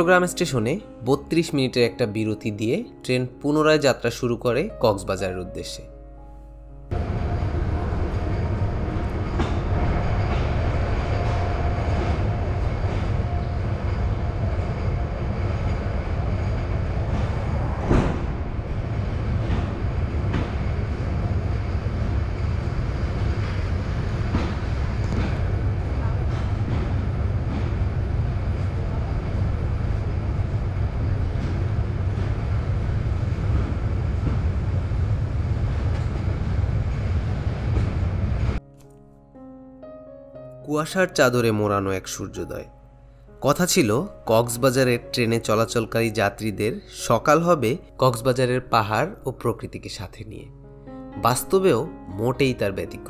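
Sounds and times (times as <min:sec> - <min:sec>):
train low rumble: 0:06.9 - 0:38.6.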